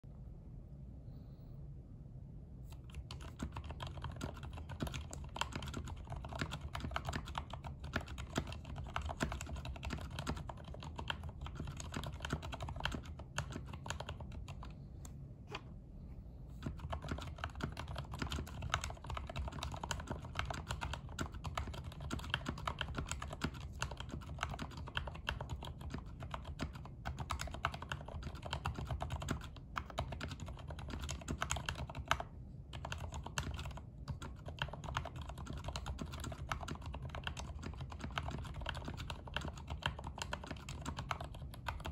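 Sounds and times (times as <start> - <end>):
mechanical keyboard typing: 2.7 - 14.7, 16.6 - 41.9.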